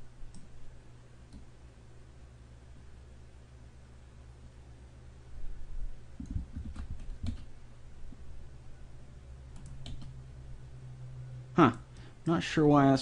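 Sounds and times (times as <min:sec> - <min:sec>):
low steady hum: 0:00.0 - 0:13.0
keyboard keystroke clicks: 0:09.5 - 0:10.1.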